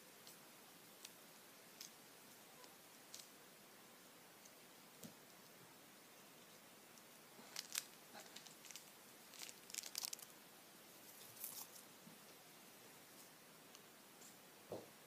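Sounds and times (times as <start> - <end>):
candy crunching: 7.4 - 10.3.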